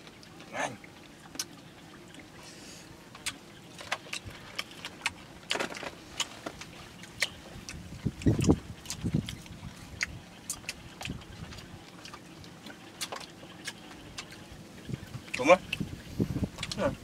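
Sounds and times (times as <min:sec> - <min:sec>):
chewing clicks and smacks: 0:03.2 - 0:14.4, 0:16.6 - 0:16.8.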